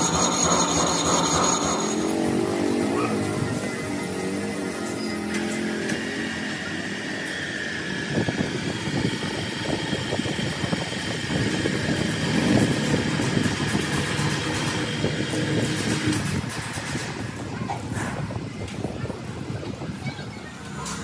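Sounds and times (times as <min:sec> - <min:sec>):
motor running with high whine: 0:00.0 - 0:16.2.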